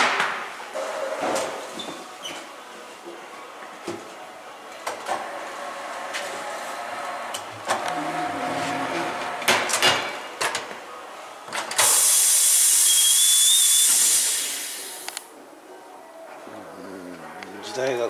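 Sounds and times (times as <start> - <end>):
loud hiss of air: 11.8 - 15.2.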